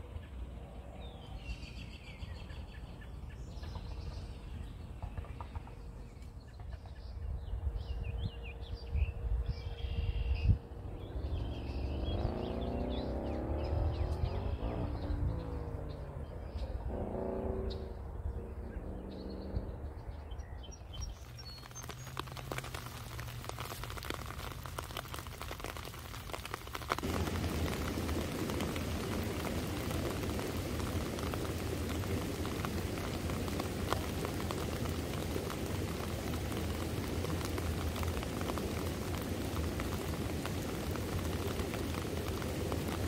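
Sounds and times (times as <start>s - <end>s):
rain patter: 10.5s - 17.9s, 20.7s - 43.0s.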